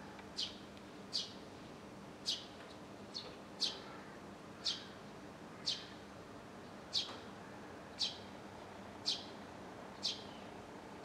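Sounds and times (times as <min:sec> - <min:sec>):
sparrow chirping: 0:00.4 - 0:01.4, 0:02.2 - 0:02.5, 0:03.1 - 0:03.8, 0:04.6 - 0:04.9, 0:05.6 - 0:05.9, 0:06.9 - 0:07.1, 0:08.0 - 0:08.2, 0:09.0 - 0:09.3, 0:10.0 - 0:10.4.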